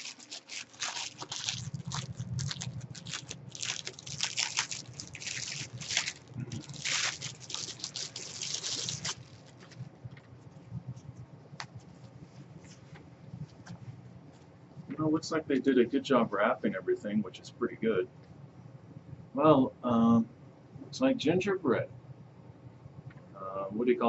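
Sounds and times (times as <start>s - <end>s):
plastic and tissue paper crinkling: 0.0s - 9.9s.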